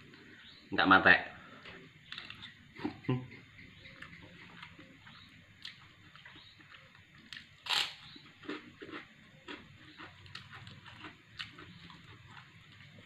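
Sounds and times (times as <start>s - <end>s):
cracker crunching: 1.6s - 2.7s, 4.4s - 13.0s
person chewing with wet smacks: 8.2s - 13.0s.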